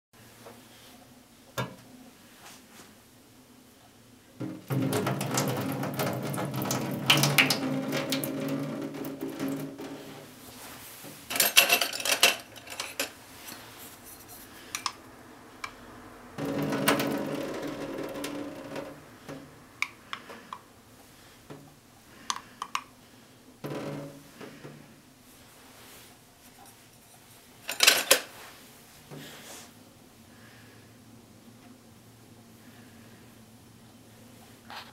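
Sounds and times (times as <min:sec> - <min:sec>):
water splashing into metal sink: 0:04.4 - 0:10.1.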